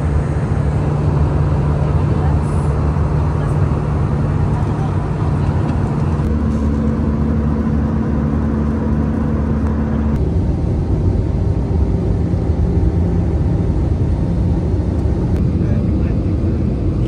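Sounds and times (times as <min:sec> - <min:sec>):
airflow rushing: 0:00.0 - 0:10.2
jet engines humming: 0:00.0 - 0:17.0.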